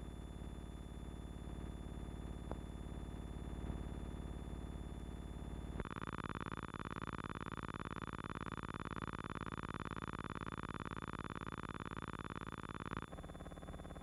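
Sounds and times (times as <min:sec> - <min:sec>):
fluttering buzzing hum: 0:05.4 - 0:14.0.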